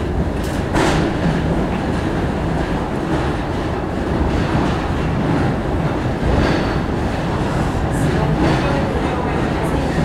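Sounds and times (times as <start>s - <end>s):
cable car rolling on rails: 0.0s - 10.0s.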